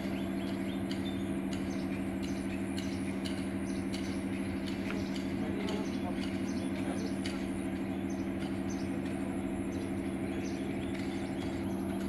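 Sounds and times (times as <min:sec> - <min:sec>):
birds chirping: 0:00.0 - 0:12.0
low mechanical hum: 0:00.0 - 0:12.0.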